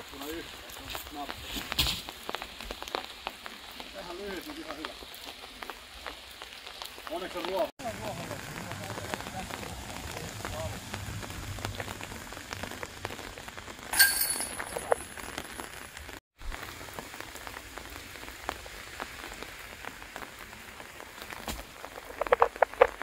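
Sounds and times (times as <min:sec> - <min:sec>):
steady rain: 0:00.0 - 0:23.0
disc hitting metal chains: 0:14.0 - 0:15.0.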